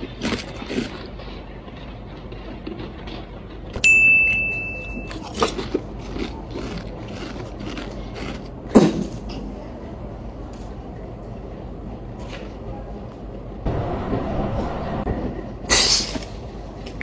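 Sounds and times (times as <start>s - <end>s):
crunchy chewing: 0.0s - 3.8s, 5.1s - 8.7s
bell-like ding: 3.8s - 5.2s.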